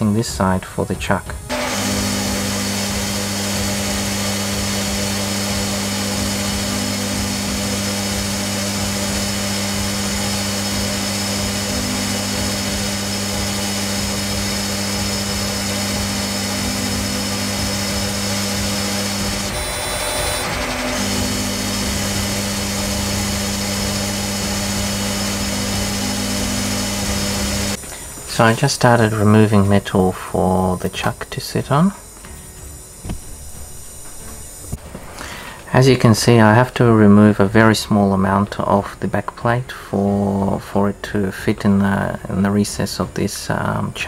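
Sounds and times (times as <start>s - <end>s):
motor hum: 1.4s - 29.8s, 32.0s - 35.6s
metal lathe cutting steel: 1.5s - 32.1s, 32.7s - 36.6s.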